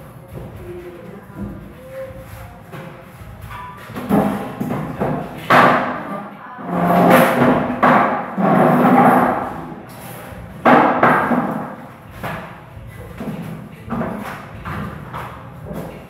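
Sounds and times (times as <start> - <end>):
metal rack banging and rattling: 3.2 - 6.1, 6.7 - 16.0.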